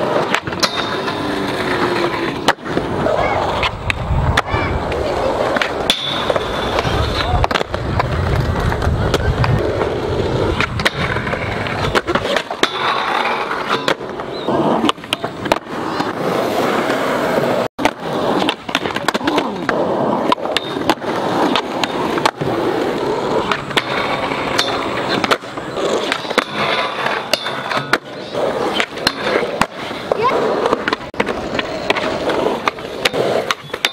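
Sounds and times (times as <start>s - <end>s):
skateboard grinding on steel rail: 0.0s - 33.9s
skateboards rolling on concrete: 0.0s - 33.9s
skateboard tail pops: 3.6s - 9.9s, 17.8s - 22.5s, 23.4s - 33.9s.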